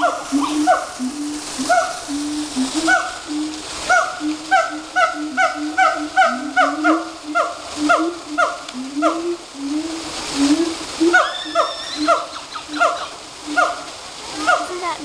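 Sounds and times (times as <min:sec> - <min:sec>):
gibbons hooting: 0:00.0 - 0:09.2, 0:11.0 - 0:13.8, 0:14.4 - 0:14.8
gibbon whoops rising in pitch: 0:11.0 - 0:13.7.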